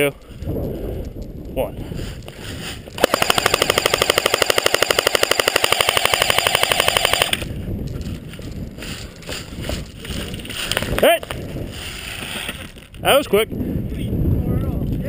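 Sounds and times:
airsoft rifle full-auto burst: 3.0 - 7.4.

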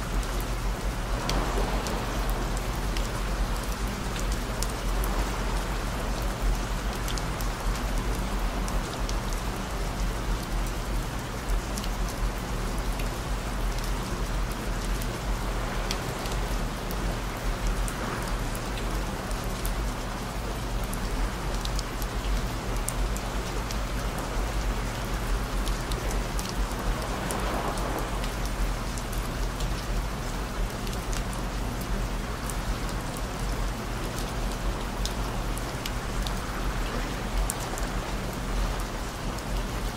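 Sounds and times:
steady rain with drop ticks: 0.0 - 39.9.

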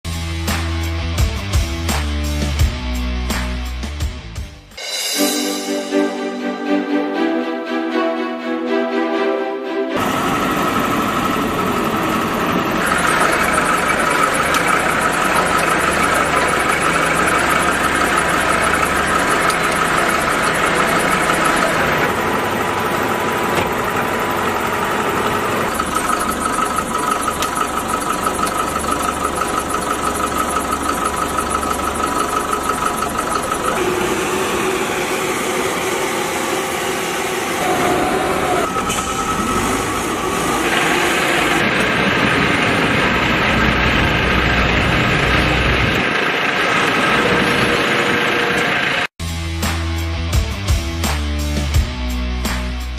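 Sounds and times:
backhoe engine running with whine: 10.0 - 49.1.

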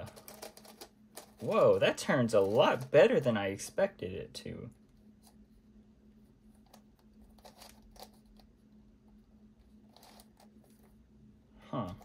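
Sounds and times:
plastic puzzle clicking turned: 0.0 - 1.5
faint steady hum: 0.0 - 12.0.

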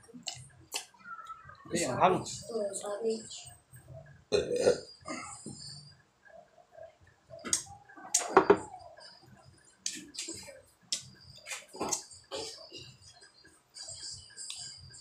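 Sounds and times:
mouth clicks and smacking: 0.2 - 1.4, 7.4 - 8.4, 10.9 - 11.2.

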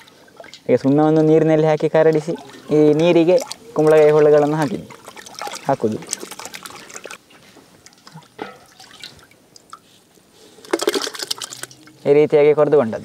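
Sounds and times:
splashes into water: 2.0 - 7.2, 8.0 - 9.7, 10.6 - 12.0.

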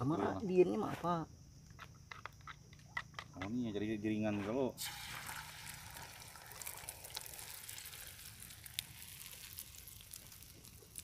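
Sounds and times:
burning logs crackling: 4.8 - 11.0
egg sizzling in a frying pan: 4.8 - 11.0.

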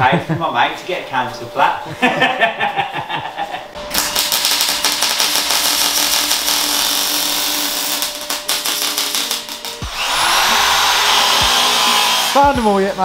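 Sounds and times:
welding arc crackling: 3.8 - 13.0.

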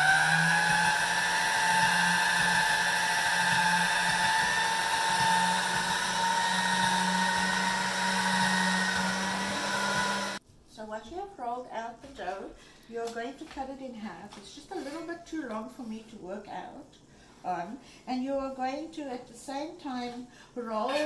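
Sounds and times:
electric motor whine: 0.0 - 10.4.

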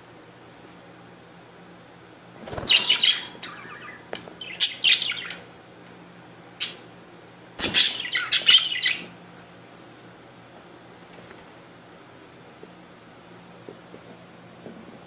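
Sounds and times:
budgerigars chirping: 2.7 - 5.4, 7.6 - 9.1.

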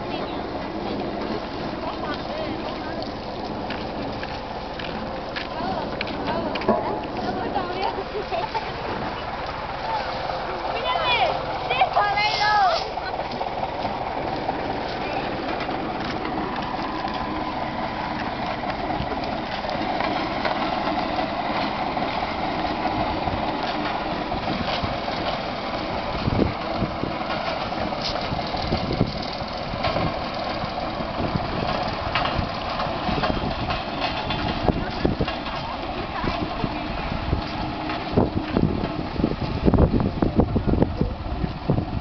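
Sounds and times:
road roller diesel engine running: 0.0 - 42.0.

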